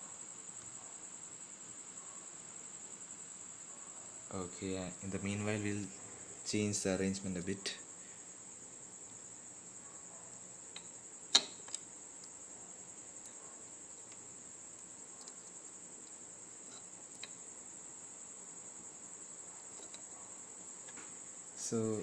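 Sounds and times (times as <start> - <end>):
cricket trill: 0.0 - 22.0
sharp click: 10.7 - 11.8.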